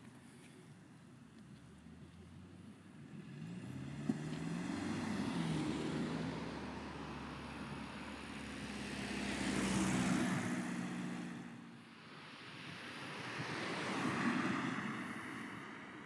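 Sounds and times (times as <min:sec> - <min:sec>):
cars passing on road: 0:00.0 - 0:16.0.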